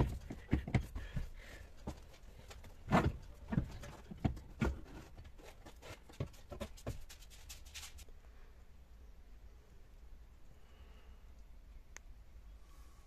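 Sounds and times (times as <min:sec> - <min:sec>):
seat frame clicks and knocks: 0:02.8 - 0:05.0
faint low hum: 0:07.8 - 0:13.0.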